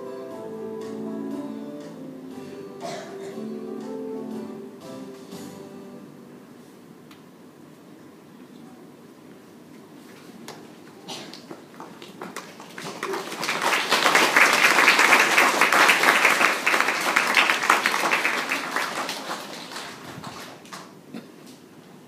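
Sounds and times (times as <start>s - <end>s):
children clapping: 11.3s - 21.0s.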